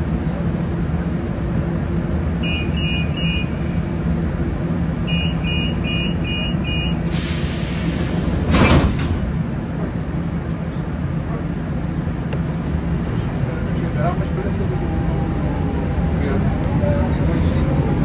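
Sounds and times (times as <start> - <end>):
train humming: 0.0 - 18.0
two-tone warning beeps: 2.4 - 3.5, 5.1 - 7.0
train doors closing whoosh: 7.0 - 9.4
hiss of air: 7.1 - 8.4.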